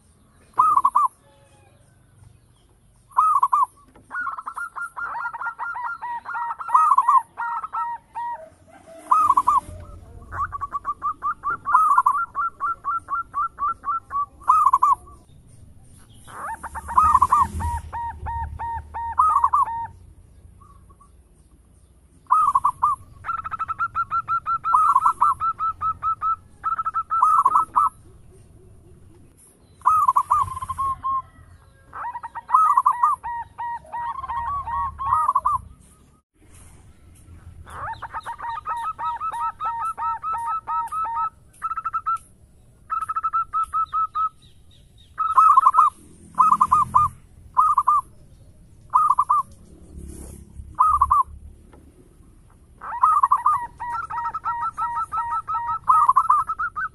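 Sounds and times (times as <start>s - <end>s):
dove cooing: 0.4s - 1.8s, 3.1s - 15.3s, 16.0s - 20.0s, 22.3s - 36.1s, 37.4s - 44.4s, 45.1s - 51.7s, 52.4s - 56.9s.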